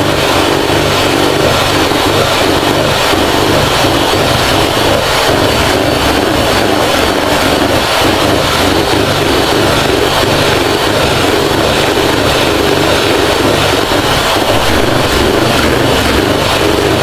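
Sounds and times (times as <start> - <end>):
electric hand mixer whipping cream: 0.0 - 17.0.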